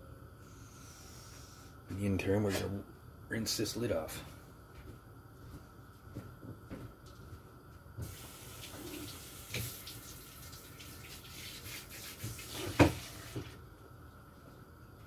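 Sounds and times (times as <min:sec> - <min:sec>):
kitchen tap running: 0:08.0 - 0:13.5.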